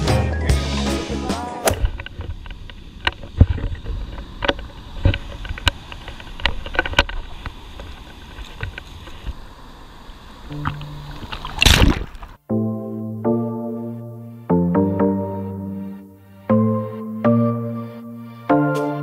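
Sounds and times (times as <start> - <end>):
surf washing in: 1.5 - 12.4.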